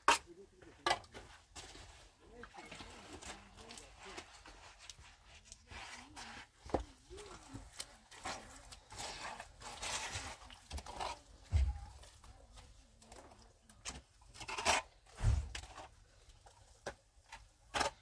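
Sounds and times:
trowel scraping plaster: 0:02.6 - 0:11.7, 0:13.9 - 0:16.0.

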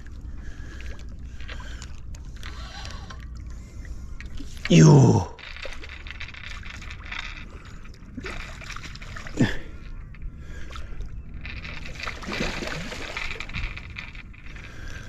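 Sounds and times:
eel splashing in water: 0:10.6 - 0:13.6.

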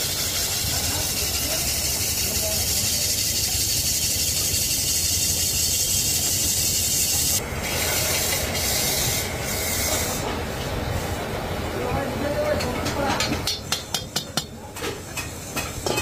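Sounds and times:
tool scraping metal: 0:00.0 - 0:10.4.

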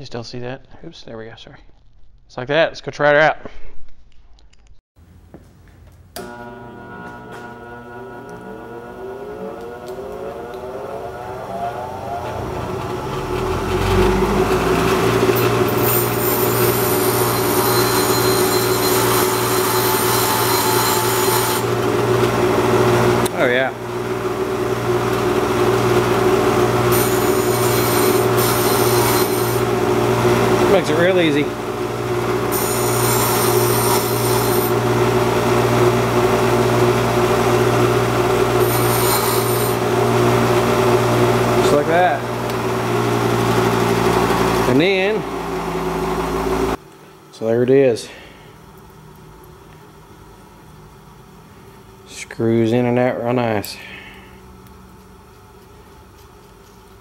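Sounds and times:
bench grinder motor hum: 0:06.2 - 0:46.8
screw grinding on stone wheel: 0:14.9 - 0:21.8, 0:26.8 - 0:29.6, 0:32.5 - 0:34.8, 0:38.6 - 0:39.8.

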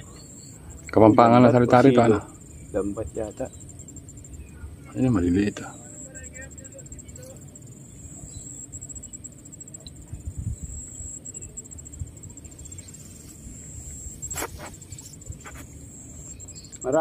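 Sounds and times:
insects trilling: 0:00.0 - 0:17.0
low wind rumble on microphone: 0:09.9 - 0:16.6.

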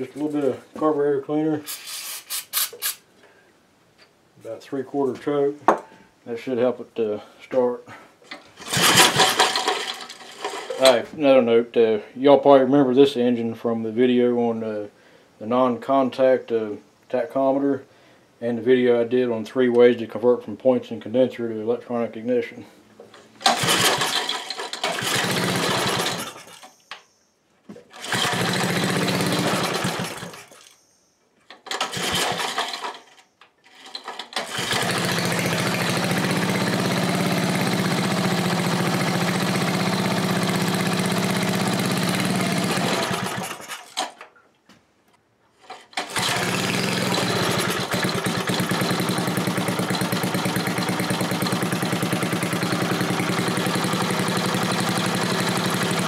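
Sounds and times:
small engine starting and running: 0:08.3 - 0:11.0, 0:23.1 - 0:26.8, 0:27.9 - 0:30.8, 0:31.6 - 0:44.2, 0:45.6 - 0:56.0.

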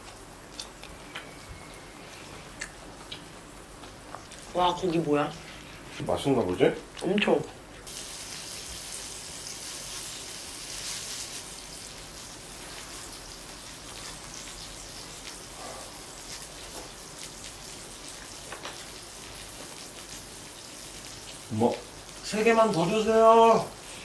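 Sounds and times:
meat sizzling on grill: 0:07.8 - 0:24.0.

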